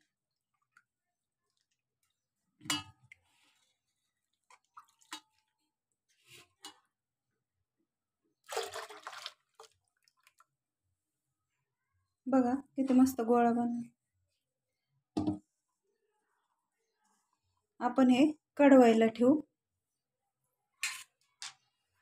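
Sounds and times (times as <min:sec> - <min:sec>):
water splashing: 0:08.4 - 0:10.4.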